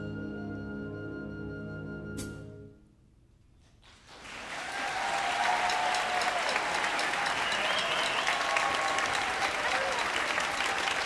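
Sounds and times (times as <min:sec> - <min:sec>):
audience applause: 0:04.0 - 0:11.0.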